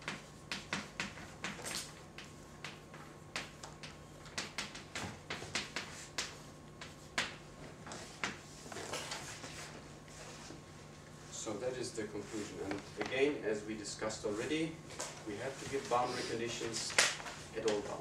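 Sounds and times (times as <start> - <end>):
chalk writing on blackboard: 0.0 - 10.6.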